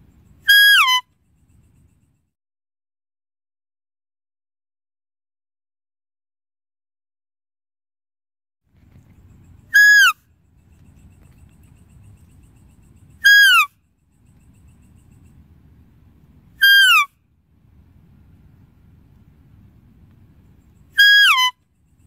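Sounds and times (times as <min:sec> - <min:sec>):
deer calling: 0:13.2 - 0:13.7, 0:16.6 - 0:17.1, 0:21.0 - 0:21.6
faint low rumble: 0:13.8 - 0:21.0.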